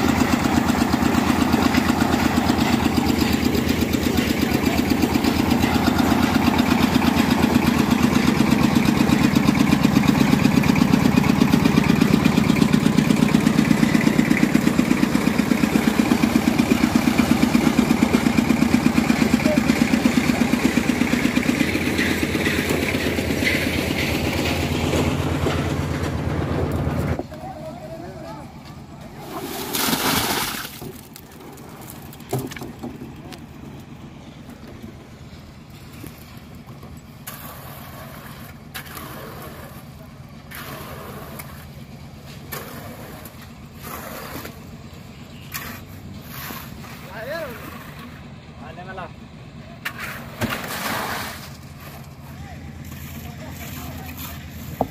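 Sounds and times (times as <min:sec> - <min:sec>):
concrete mixer engine humming: 0:00.0 - 0:54.9
wet concrete being shovelled: 0:29.1 - 0:32.0, 0:37.2 - 0:44.8, 0:45.4 - 0:48.1, 0:49.9 - 0:54.9.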